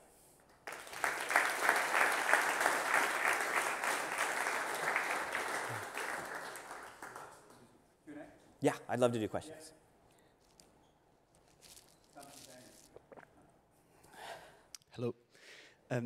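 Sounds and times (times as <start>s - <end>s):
audience applauding: 0.5s - 7.7s.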